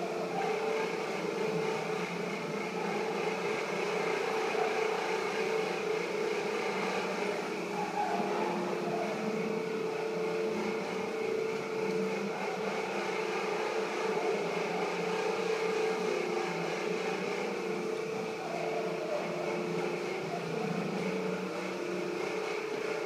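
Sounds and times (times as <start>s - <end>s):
motor or fan humming: 0.0s - 23.0s.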